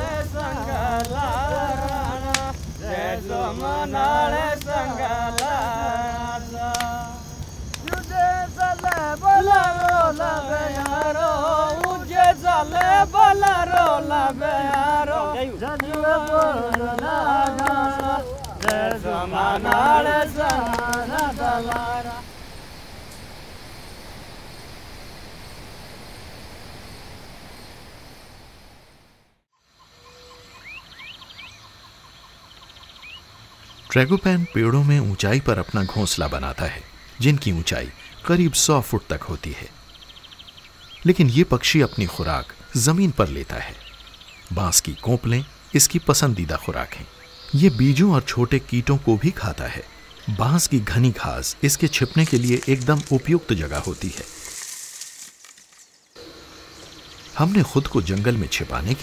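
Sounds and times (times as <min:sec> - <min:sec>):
voices singing together: 0:00.0 - 0:22.5
insects chirping: 0:00.0 - 0:59.0.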